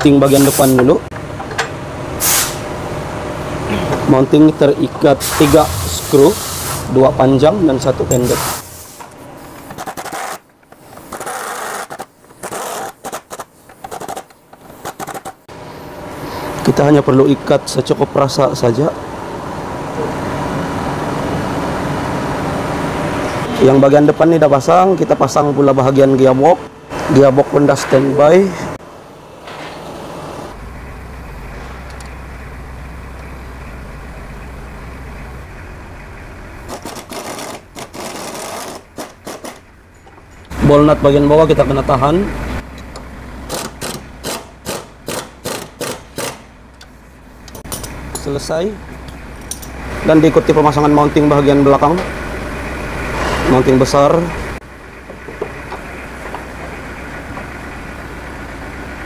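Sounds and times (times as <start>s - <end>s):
power tool driving bolts: 9.7s - 15.4s, 36.7s - 39.6s, 43.5s - 46.5s
ratchet wrench clicking: 43.5s - 46.4s.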